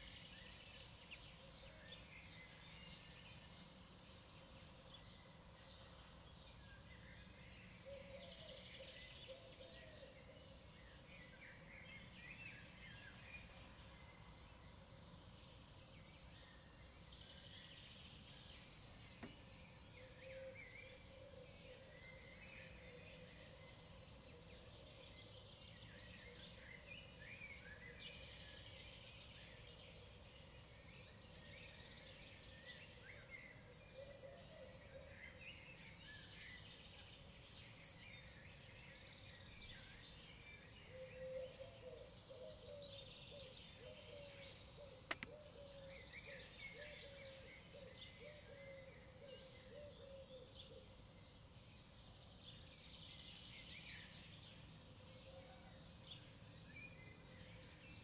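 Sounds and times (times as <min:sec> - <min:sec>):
lower rapid bird calls: 0:00.0 - 0:58.0
songbirds chirping: 0:00.0 - 0:58.0
sharp click: 0:45.1 - 0:45.3.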